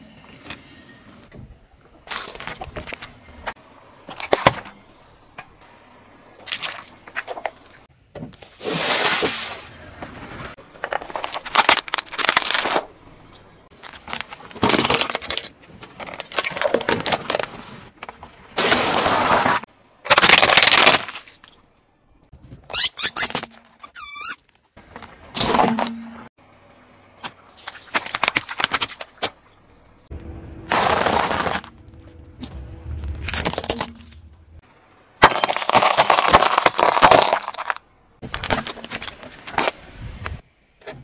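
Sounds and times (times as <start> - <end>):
crunching and squashing noises: 0.3 - 5.6, 6.4 - 26.3, 27.2 - 41.0
tyre crushing objects with cracks: 10.8 - 13.0, 30.6 - 34.6, 35.2 - 39.8.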